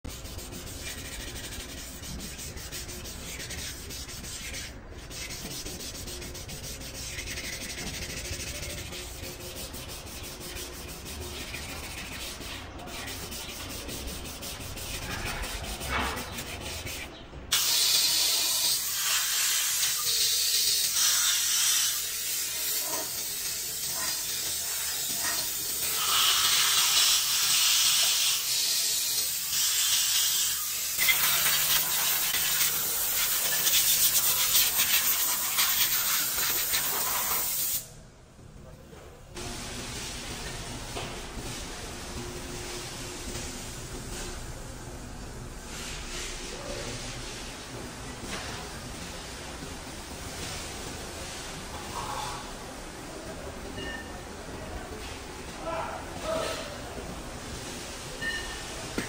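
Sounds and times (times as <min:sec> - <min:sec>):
hand scrubbing on metal: 0:00.1 - 0:17.2, 0:31.0 - 0:37.7
spray gun hissing: 0:25.6 - 0:37.8.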